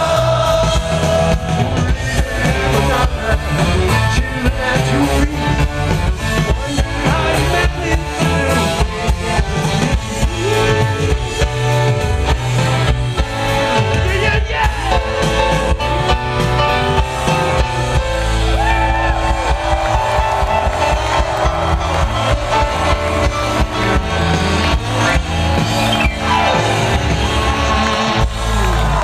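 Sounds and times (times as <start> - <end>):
person singing: 0.0 - 11.8
drums: 0.0 - 29.0
live rock band playing: 0.0 - 29.0
piano: 0.0 - 29.0.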